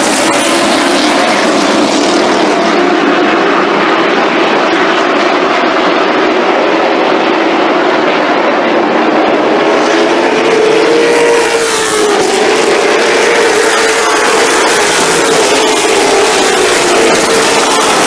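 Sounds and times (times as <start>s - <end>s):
race car engines passing: 0.0s - 18.0s.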